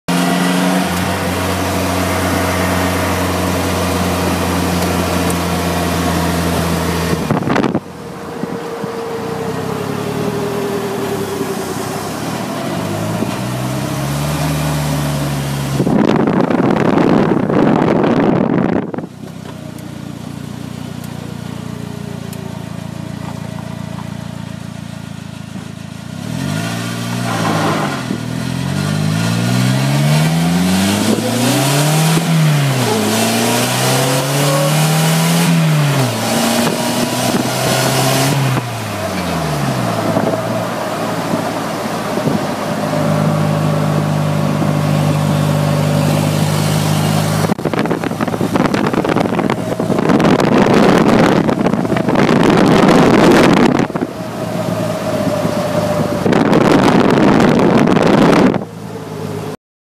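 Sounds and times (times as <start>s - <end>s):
car engine running: 0.1s - 59.6s
loud rush of noise: 0.2s - 19.1s, 29.1s - 58.8s.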